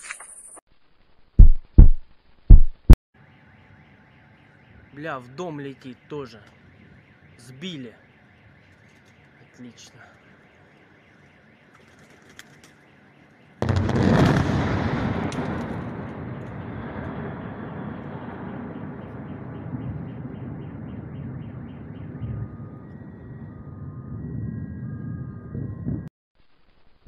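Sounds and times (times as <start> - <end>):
car alarm beeping: 3.4 - 12.2
distant explosion boom and rumble: 13.6 - 26.1.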